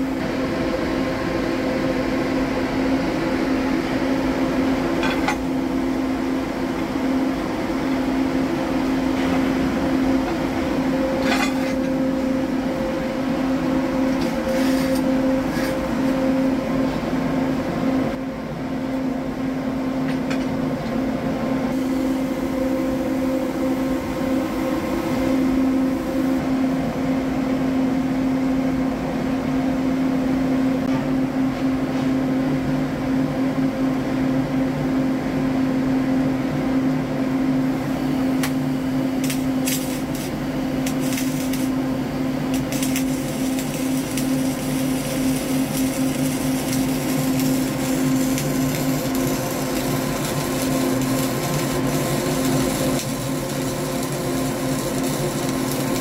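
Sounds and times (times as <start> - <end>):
steady hum: 0.0 - 56.0
welding arc crackling: 37.9 - 56.0.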